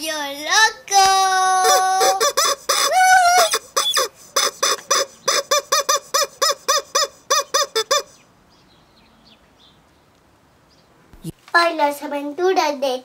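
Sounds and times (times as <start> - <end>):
rubber chicken toy squawking: 1.4 - 8.2.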